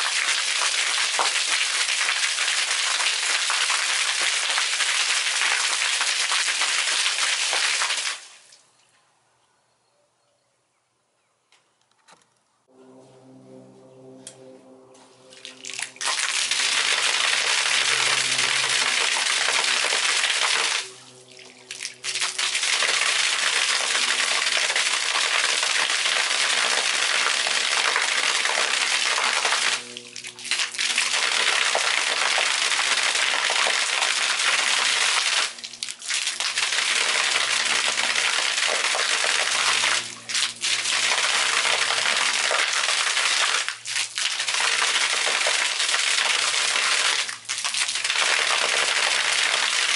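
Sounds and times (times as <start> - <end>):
fountain water splashing on concrete: 0.0 - 8.6, 15.4 - 49.9.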